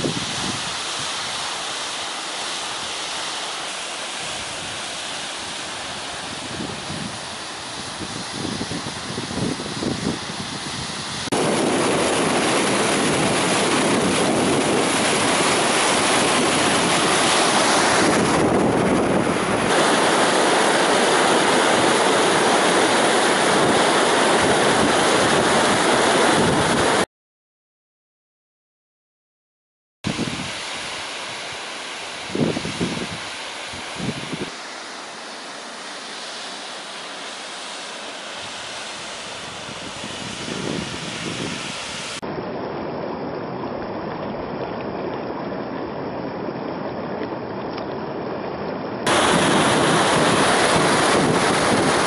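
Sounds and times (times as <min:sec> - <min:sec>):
wind on microphone: 0:00.0 - 0:01.4, 0:04.2 - 0:27.0, 0:30.1 - 0:31.6, 0:32.2 - 0:34.5, 0:38.4 - 0:42.2, 0:49.0 - 0:52.0
waterfall rushing: 0:00.0 - 0:27.0, 0:30.1 - 0:42.2, 0:49.0 - 0:52.0.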